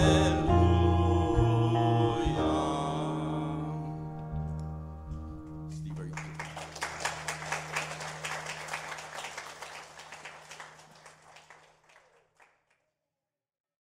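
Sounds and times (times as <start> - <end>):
crowd applauding: 5.8 - 12.6.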